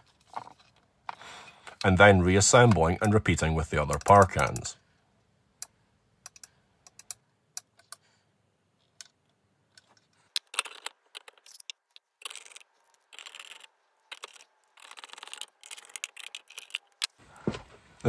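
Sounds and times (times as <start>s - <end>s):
plastic scraping and rattling: 9.8s - 17.7s.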